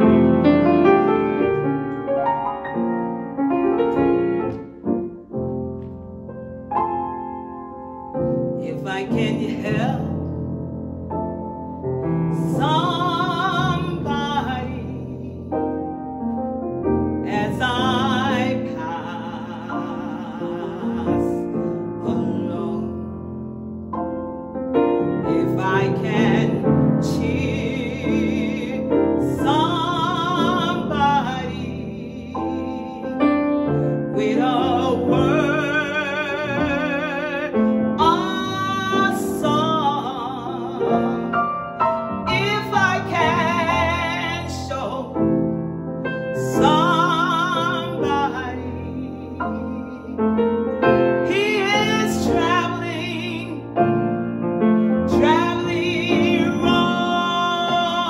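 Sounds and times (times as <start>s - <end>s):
grand piano: 0.0s - 58.0s
woman singing gospel: 8.6s - 10.2s, 12.4s - 15.5s, 17.2s - 23.1s, 25.3s - 33.2s, 34.1s - 41.4s, 42.3s - 45.2s, 46.4s - 50.2s, 51.2s - 53.6s, 55.1s - 58.0s.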